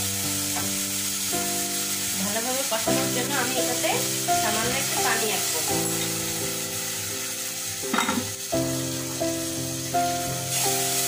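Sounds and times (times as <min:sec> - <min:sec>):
background music with held notes: 0:00.0 - 0:11.0
paste sizzling in oil: 0:00.0 - 0:11.0.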